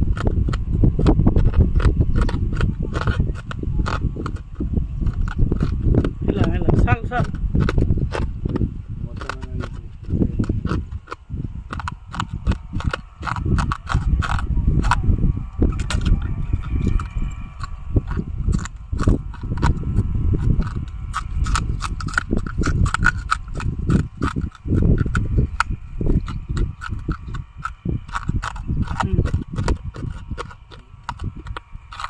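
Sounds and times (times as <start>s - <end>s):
glass crunching between teeth: 10.4s - 15.0s, 15.6s - 32.0s.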